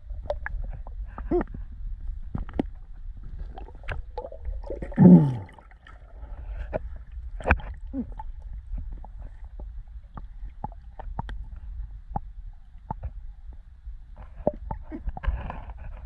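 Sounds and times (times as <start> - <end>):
underwater low rumble: 0.0 - 16.0
bubbling gurgle: 3.2 - 6.5.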